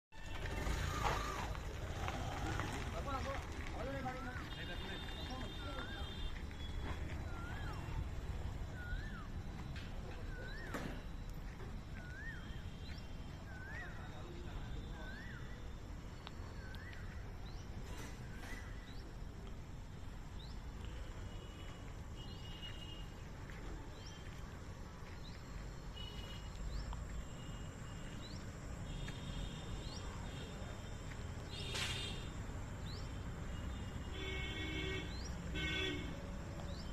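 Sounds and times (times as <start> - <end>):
small birds chirping: 8.6 - 30.7.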